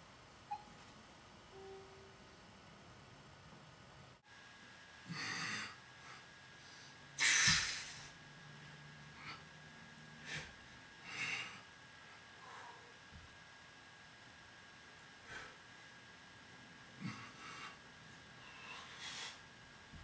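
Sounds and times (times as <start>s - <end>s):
man exhaling forcefully: 7.2s - 8.1s.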